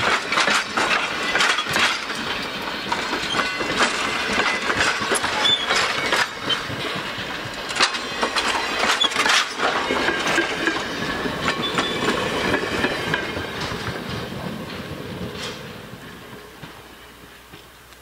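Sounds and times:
train wheels clacking over rail joints: 0.0 - 17.8
faint high wheel squeals: 2.8 - 3.7, 5.2 - 6.8, 11.1 - 12.2.

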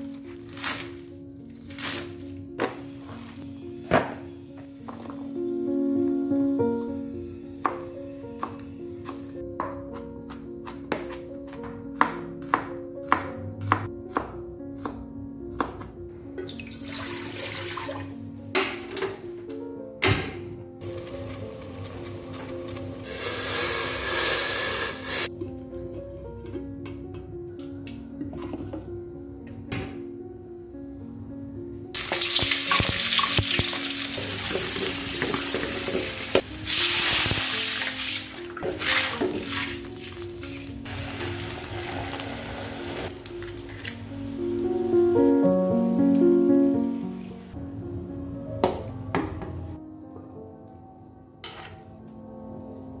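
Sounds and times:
knife chopping on plastic board: 8.4 - 15.0
water pouring into metal pot: 16.5 - 18.2
food sizzling in hot oil: 20.8 - 25.3, 32.0 - 43.1
water hissing in hot wok: 23.0 - 25.3, 32.0 - 43.1
wooden spatula scraping wok: 37.6 - 43.1.

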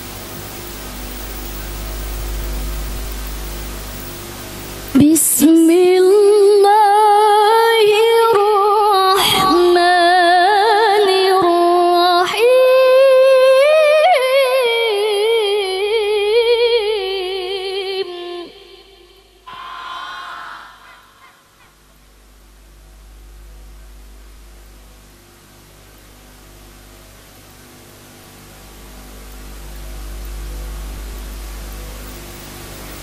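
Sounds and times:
woman reciting melodically: 5.0 - 21.5.

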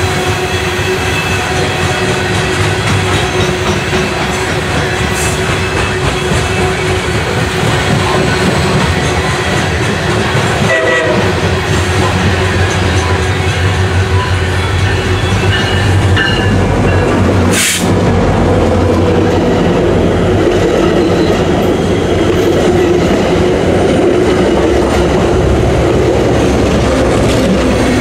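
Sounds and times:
diesel locomotive engine hum: 0.0 - 28.0
train wheels clacking on rails: 0.0 - 28.0
short hiss: 17.5 - 17.9.

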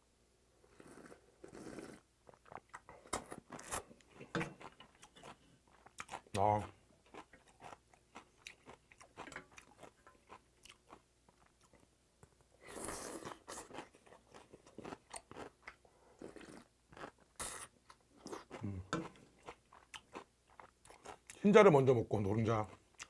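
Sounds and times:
slurping noodles: 0.7 - 2.1.

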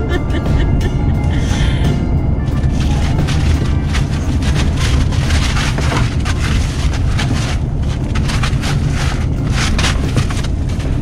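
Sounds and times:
road and engine rumble: 0.0 - 11.0
goats rustling on tarp and hay: 2.6 - 11.0.

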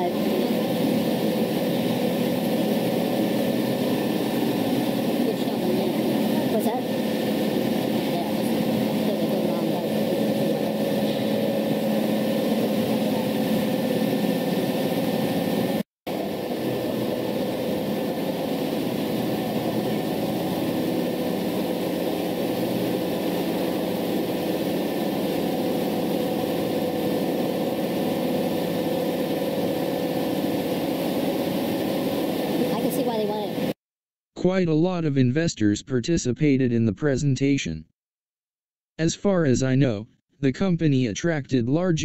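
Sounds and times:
machine humming: 0.0 - 33.8.

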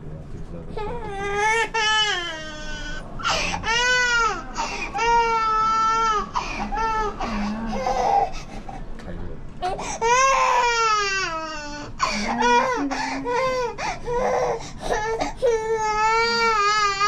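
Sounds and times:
infant crying: 0.8 - 8.5, 9.6 - 17.0.

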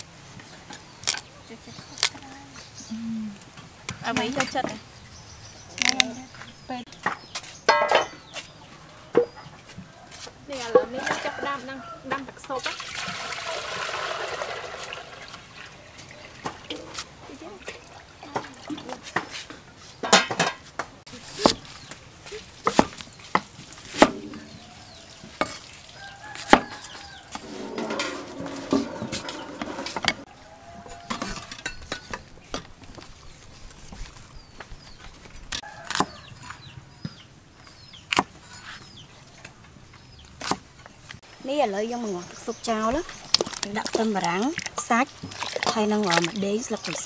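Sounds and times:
steel tray clinking: 27.4 - 30.3.

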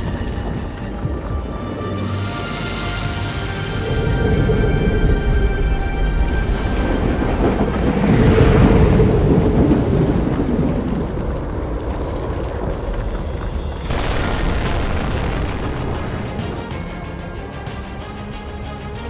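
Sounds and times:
hissing noise: 0.0 - 4.8
deep rolling rumble: 0.0 - 17.4.

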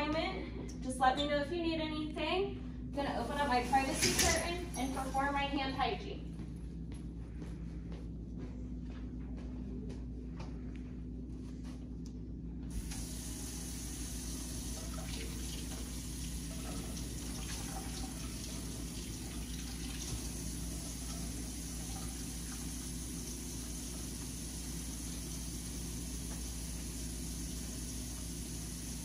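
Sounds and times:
water tap running into steel sink: 3.2 - 4.8, 12.7 - 29.0.

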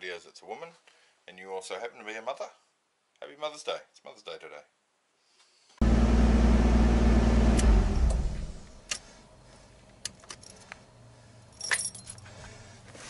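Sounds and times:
car engine running and winding down: 5.8 - 8.8
keys jangling: 10.1 - 10.8, 11.5 - 12.3.

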